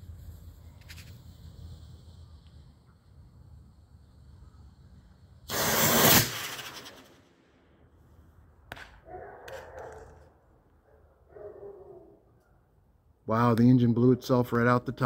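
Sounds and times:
rocket motor whoosh: 0:05.5 - 0:07.2.

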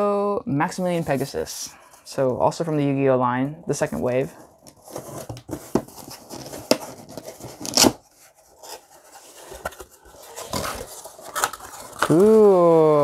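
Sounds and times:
cardboard scraping and rustling: 0:04.0 - 0:12.4
packing tape ripping: 0:06.3 - 0:08.0, 0:10.3 - 0:12.5.

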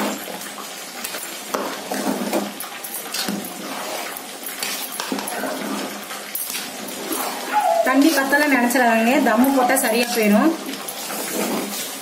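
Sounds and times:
metal spoon scraping a metal pot: 0:03.1 - 0:12.0.

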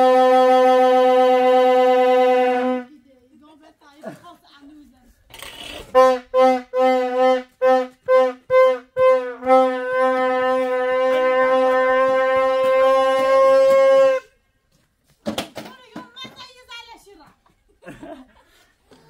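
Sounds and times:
plastic toy horn tooting: 0:05.3 - 0:14.3.

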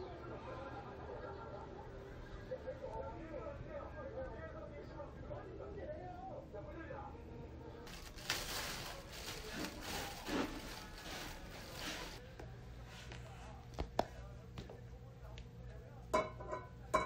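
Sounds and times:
cat litter being scooped: 0:07.9 - 0:12.2.

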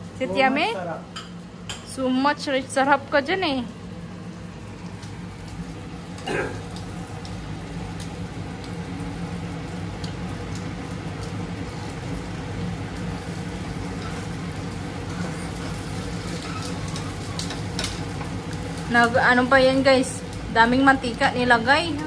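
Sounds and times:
food frying in a pan: 0:00.0 - 0:22.0
utensils clicking against pan: 0:15.0 - 0:19.9.

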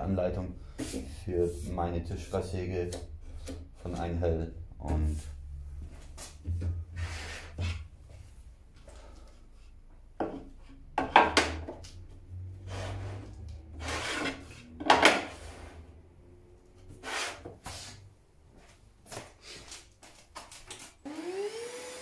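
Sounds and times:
plywood sliding over metal table: 0:12.6 - 0:16.0.

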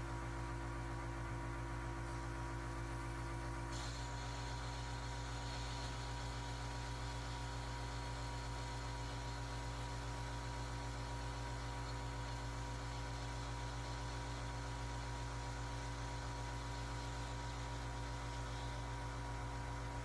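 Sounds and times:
low electrical hum: 0:00.0 - 0:20.0
hiss: 0:03.7 - 0:19.7.

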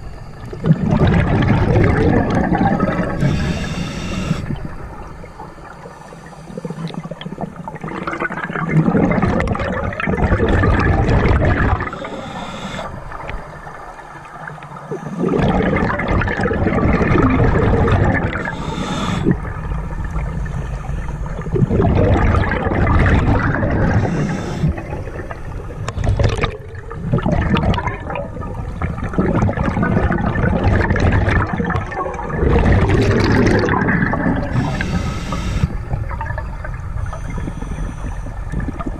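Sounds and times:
regulator bubbling exhalation: 0:00.5 - 0:05.4, 0:06.2 - 0:13.0, 0:14.9 - 0:19.6, 0:21.4 - 0:25.4, 0:28.9 - 0:38.9.

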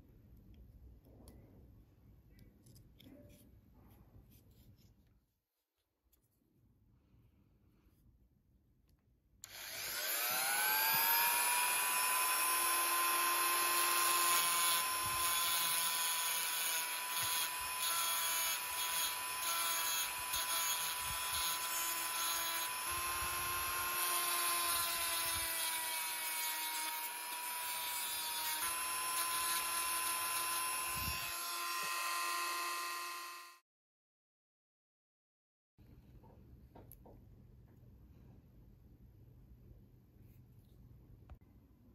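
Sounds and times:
rotary tool whining: 0:09.4 - 0:33.6.

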